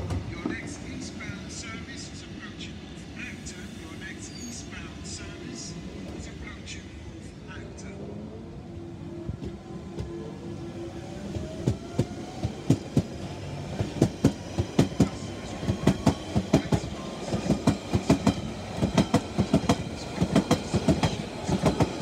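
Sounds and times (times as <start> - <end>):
train wheels clacking over joints: 13.8 - 22.0.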